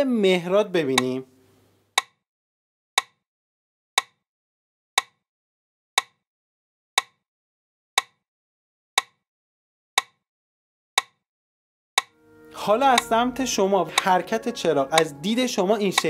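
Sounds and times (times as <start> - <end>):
metronome ticking: 0.9 - 1.2, 2.0 - 2.2, 3.0 - 3.2, 4.0 - 4.2, 5.0 - 5.2, 6.0 - 6.2, 7.0 - 7.2, 8.0 - 8.2, 9.0 - 9.2, 10.0 - 10.2, 11.0 - 11.2, 12.0 - 12.2, 12.8 - 16.0.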